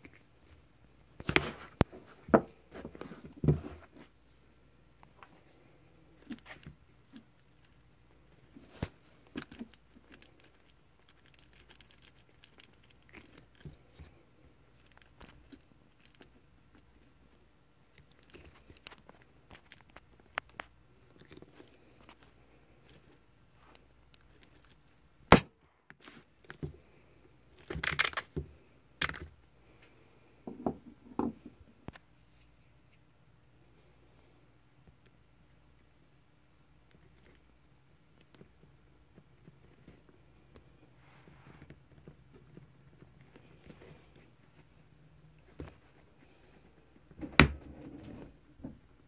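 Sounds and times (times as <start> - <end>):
sharp crack: 25.3 - 25.6.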